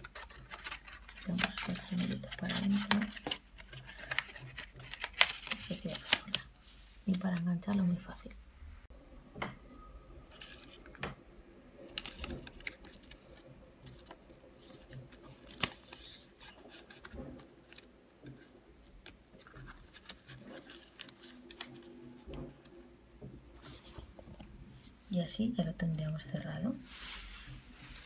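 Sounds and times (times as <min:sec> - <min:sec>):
cardstock rustling: 0:00.0 - 0:08.0, 0:11.8 - 0:22.9.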